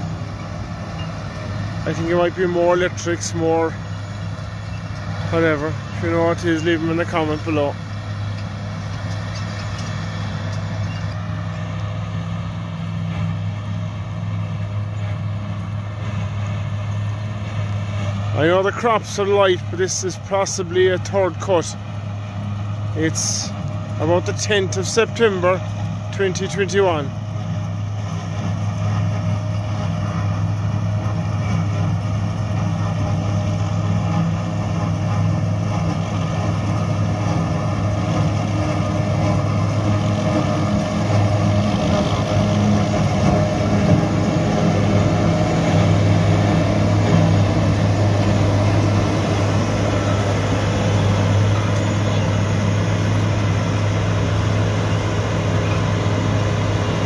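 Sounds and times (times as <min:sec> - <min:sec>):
heavy engines droning: 0:00.0 - 0:57.0.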